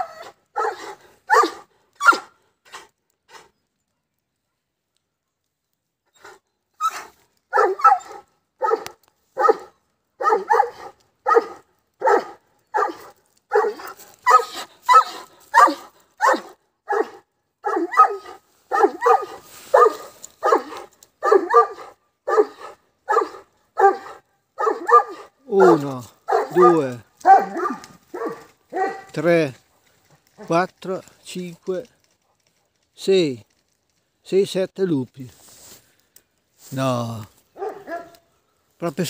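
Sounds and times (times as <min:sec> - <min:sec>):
dog barking: 0:00.0 - 0:02.3, 0:06.9 - 0:29.2, 0:37.6 - 0:38.2.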